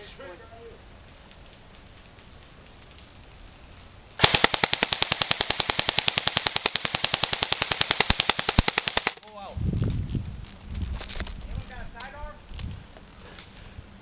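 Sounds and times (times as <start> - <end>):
airsoft gun full-auto burst: 4.2 - 9.2.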